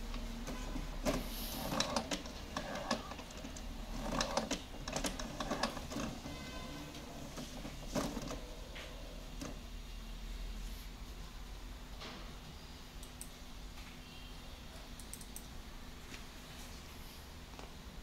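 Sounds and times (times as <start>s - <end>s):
printer whirring and clicking: 0.0s - 9.8s.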